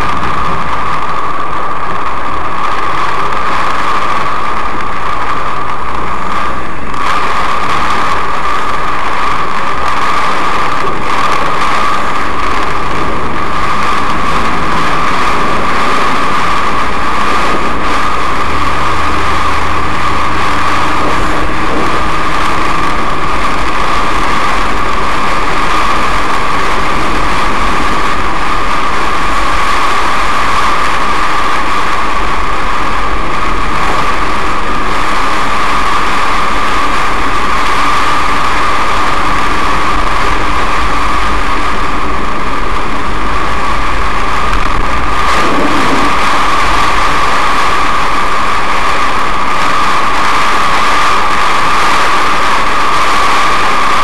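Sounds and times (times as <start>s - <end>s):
car engine running: 0.0s - 54.0s
heavy rain on car: 0.0s - 54.0s
wet road tyre noise: 0.0s - 54.0s.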